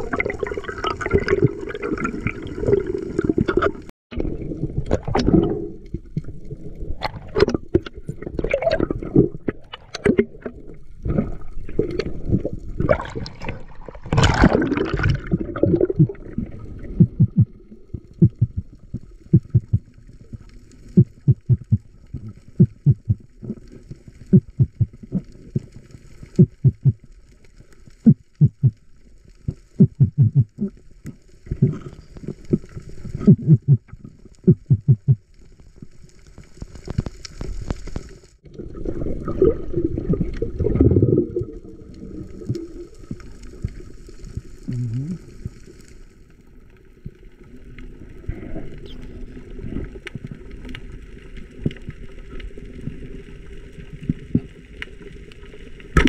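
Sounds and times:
water rushing and gurgling: 0.0s - 34.8s
soft low thumps: 16.9s - 19.9s, 21.0s - 23.3s, 24.3s - 25.0s, 26.4s - 27.0s, 28.1s - 28.8s, 29.8s - 30.6s, 33.3s - 33.9s, 34.5s - 35.2s.

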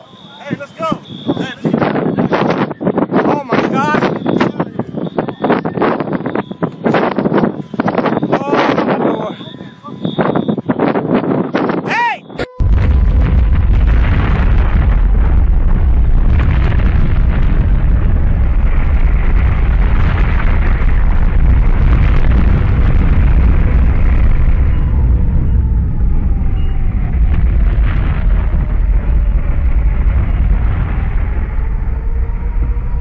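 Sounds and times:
explosion rumbling roar: 12.6s - 33.0s.

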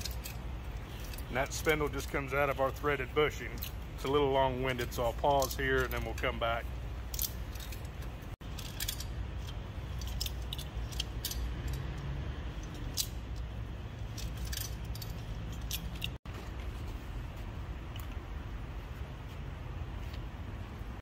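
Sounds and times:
metallic clinks and scrapes: 0.0s - 18.2s.

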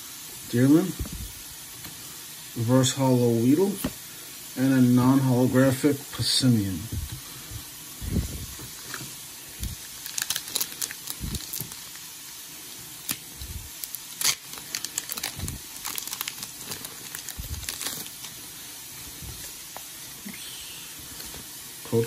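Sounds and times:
foil wrapper crinkling and tearing: 9.6s - 12.1s, 12.9s - 18.4s.

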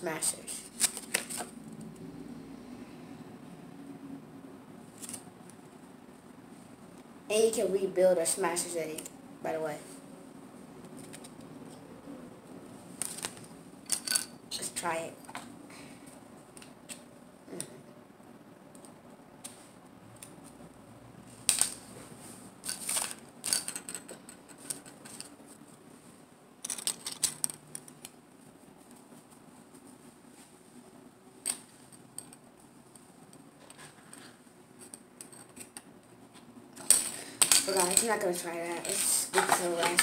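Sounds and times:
plastic toy pieces clicking: 26.6s - 28.1s.

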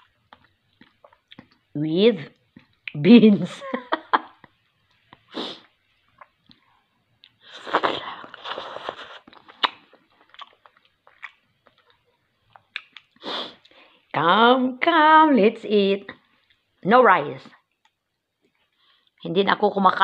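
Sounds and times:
chewing: 0.0s - 1.7s, 6.0s - 13.8s
lip smacks and mouth clicks: 0.0s - 1.7s, 2.3s - 3.0s, 4.4s - 5.3s, 6.0s - 13.8s, 17.6s - 19.2s.

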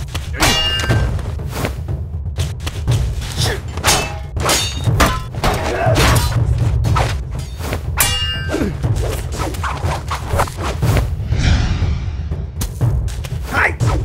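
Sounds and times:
ringing metallic clang: 8.0s - 8.6s
low drone: 11.2s - 12.6s.

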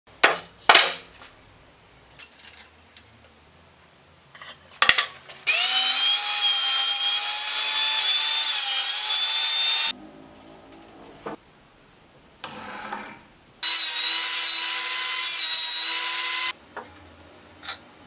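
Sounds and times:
table saw cutting wood: 5.5s - 9.9s, 13.6s - 16.5s.

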